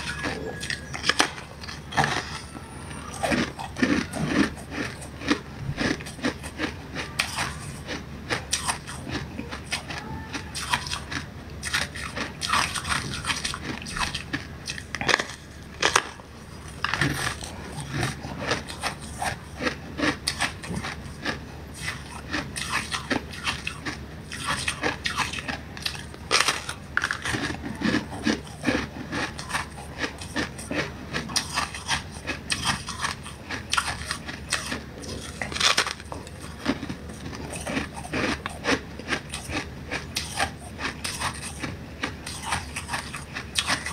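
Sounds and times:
crunching frozen ice: 0.0s - 43.9s.

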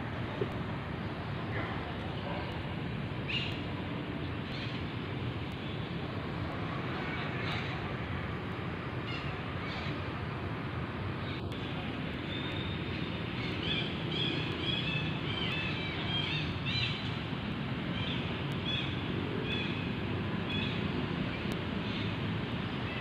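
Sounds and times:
steady low outdoor noise: 0.0s - 23.0s.

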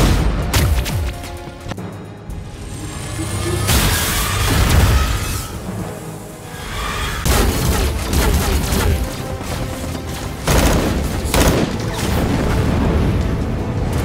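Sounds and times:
dramatic music: 0.0s - 14.0s
gunfire: 7.3s - 12.2s.

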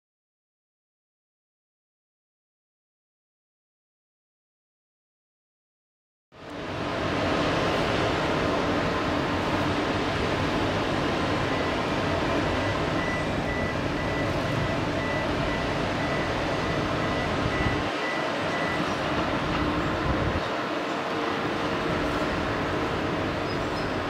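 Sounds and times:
diesel locomotive engine rumble: 6.4s - 24.0s.

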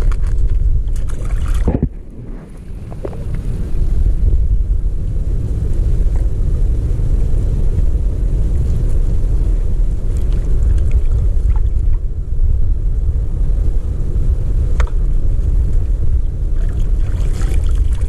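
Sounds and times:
choppy sea water: 0.0s - 18.0s
wind buffeting microphone: 0.0s - 18.0s.

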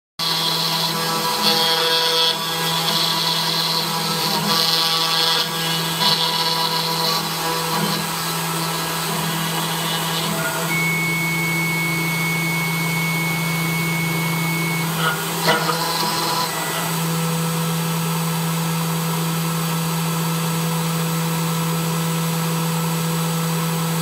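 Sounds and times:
router bit cutting noise: 0.2s - 24.0s
spindle motor humming: 0.2s - 24.0s
steady high whine: 8.1s - 17.9s.

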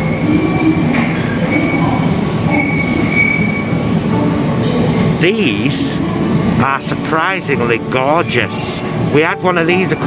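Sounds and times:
trolley wheel squeal: 0.0s - 4.0s, 8.0s - 9.0s.

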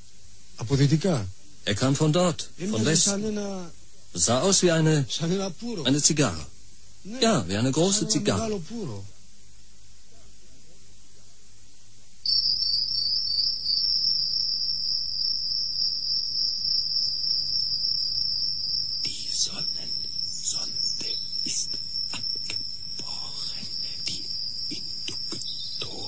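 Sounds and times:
tape hiss: 0.0s - 26.0s
shrill high-pitched chirring: 12.2s - 26.0s.

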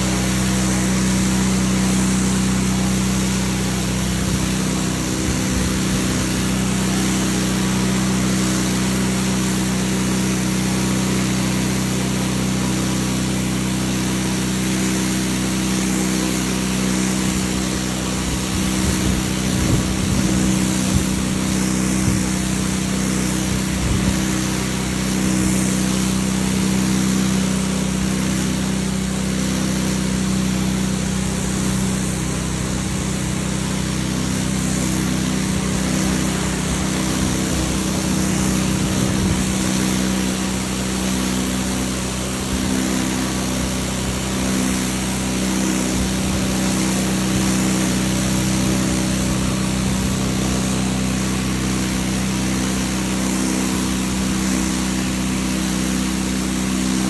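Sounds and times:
pressure washer motor drone: 0.0s - 57.0s
water jet hissing on asphalt: 0.0s - 57.0s.

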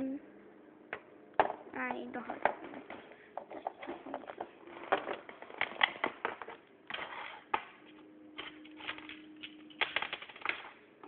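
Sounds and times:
plastic toys clicking and tapping: 8.4s - 10.8s.

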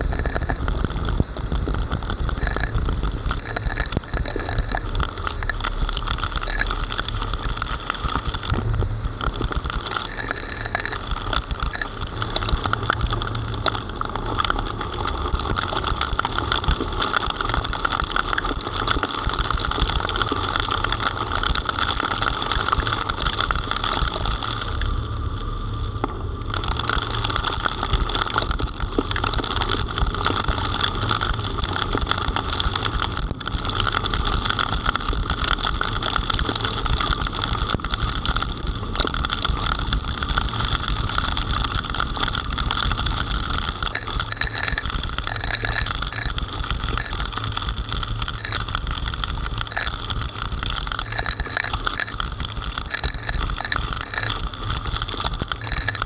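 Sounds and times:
deep rumble: 0.0s - 56.0s
heavy rain: 0.0s - 56.0s
driving wind: 7.9s - 10.0s.

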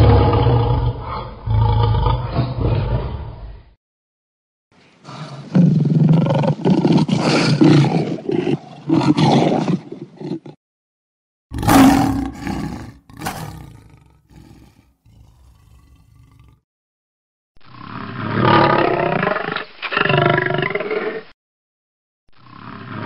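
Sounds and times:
lion roaring and growling: 0.0s - 3.6s, 5.1s - 10.6s, 11.5s - 16.6s, 18.0s - 21.2s.

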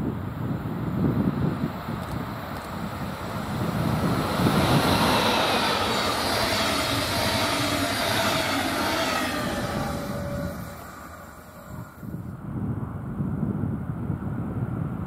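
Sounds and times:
train wheels rushing rumble: 0.8s - 12.3s.

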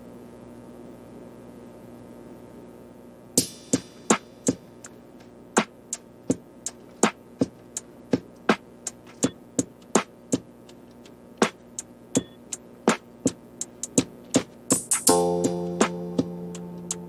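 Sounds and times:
sparse percussive beat: 3.4s - 5.0s, 5.6s - 17.0s.

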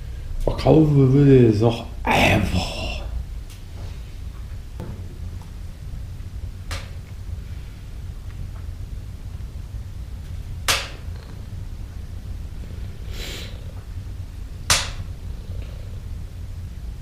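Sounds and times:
cat purring: 7.4s - 17.0s.

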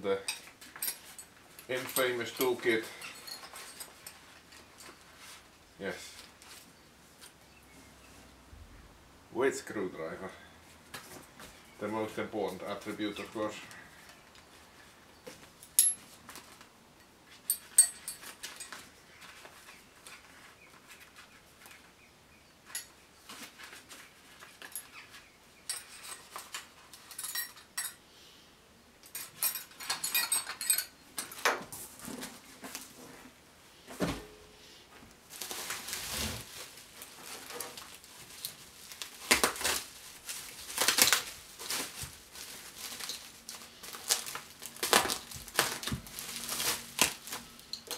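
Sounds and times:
metal tools clinking in a bag: 0.2s - 5.4s, 15.6s - 16.4s, 17.3s - 20.2s, 22.6s - 28.0s, 29.0s - 31.5s, 36.8s - 47.9s
plastic rustling: 35.0s - 47.9s
bubble wrap crinkling: 35.1s - 47.9s.

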